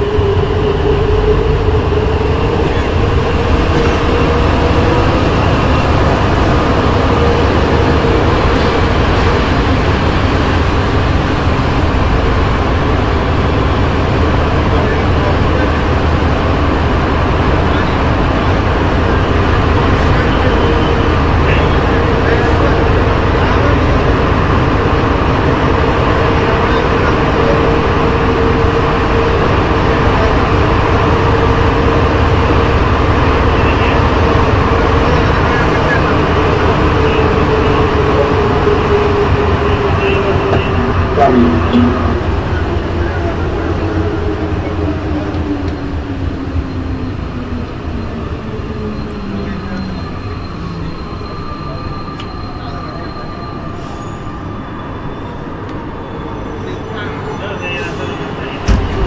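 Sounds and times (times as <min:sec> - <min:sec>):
train running through tunnel: 0:00.0 - 0:59.0
steady hum: 0:40.0 - 0:42.9.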